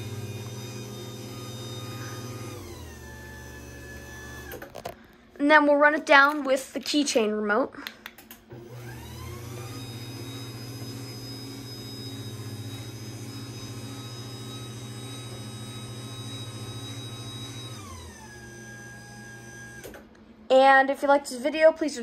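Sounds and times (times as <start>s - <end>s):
garage door opener motor whine: 0.0s - 5.2s, 8.3s - 20.2s.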